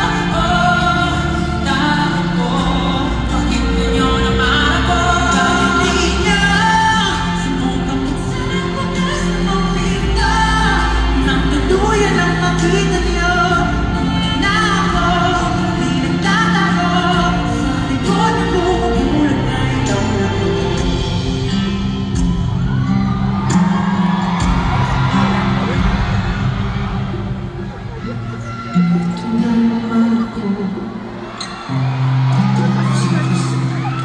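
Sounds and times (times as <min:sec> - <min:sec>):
men singing pop ballad: 0:00.0 - 0:22.4.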